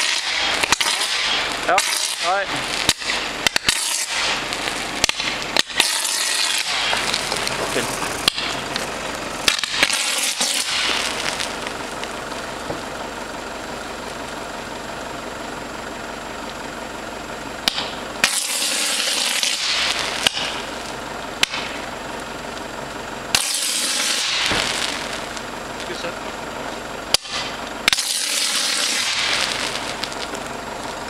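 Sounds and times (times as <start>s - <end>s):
sharp pops and cracks: 0.0s - 12.9s, 17.6s - 21.9s, 23.3s - 31.0s
electrical arcing hissing crackle: 0.0s - 31.0s.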